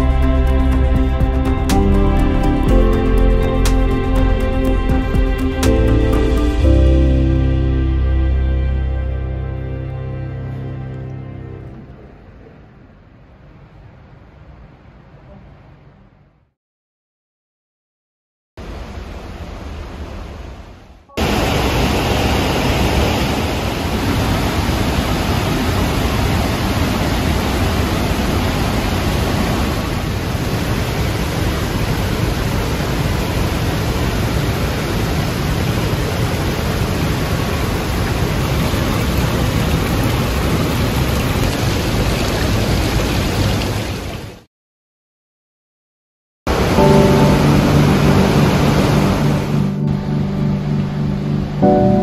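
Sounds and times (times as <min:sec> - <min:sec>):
fast-flowing water rushing: 0:21.2 - 0:44.5, 0:46.5 - 0:49.8.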